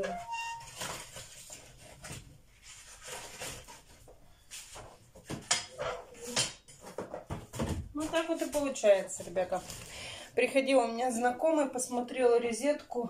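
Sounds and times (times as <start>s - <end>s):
cardboard crunching and rustling: 0.6s - 5.4s.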